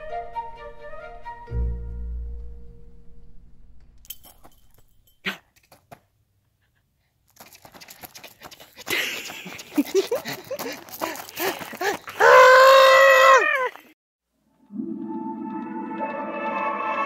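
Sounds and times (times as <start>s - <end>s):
toddler squealing and shrieking: 12.2s - 13.9s.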